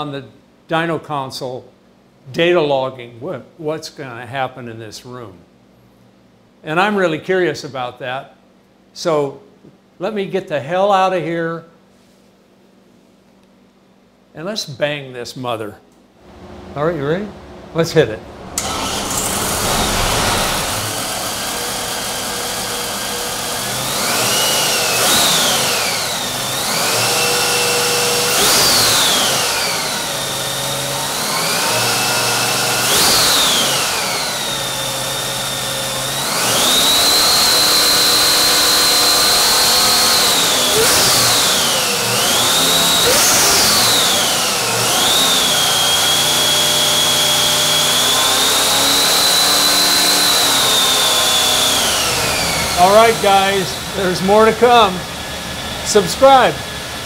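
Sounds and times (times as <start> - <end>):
engine revving: 16.3 - 34.8, 36.0 - 57.0.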